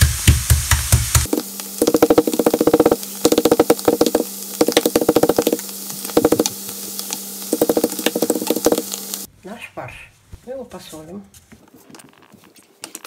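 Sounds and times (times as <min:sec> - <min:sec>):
meat mallet tapping on board: 0:00.3 - 0:05.6, 0:06.2 - 0:06.5, 0:07.5 - 0:08.8.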